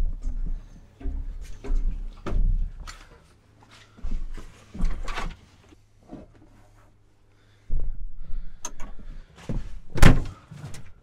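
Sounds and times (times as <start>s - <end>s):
rustling and knocking in cab: 0.0s - 3.3s, 4.0s - 6.6s, 8.8s - 11.0s.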